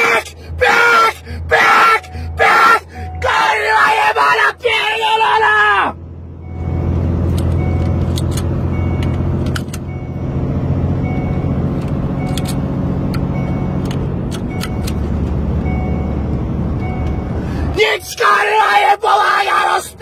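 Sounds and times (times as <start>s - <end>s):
diesel truck engine running: 0.0s - 20.0s
faint warning chime: 6.4s - 12.6s, 13.3s - 13.9s, 14.5s - 18.2s
sharp clicks: 11.8s - 15.1s.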